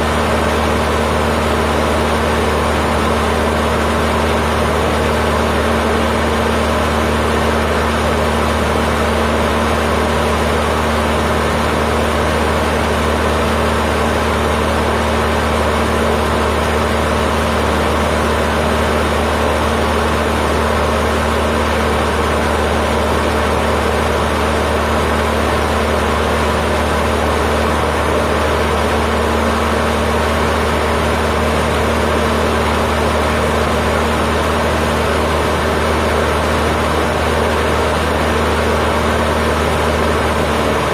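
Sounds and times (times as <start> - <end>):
airplane engine drone in cockpit: 0.0 - 40.9.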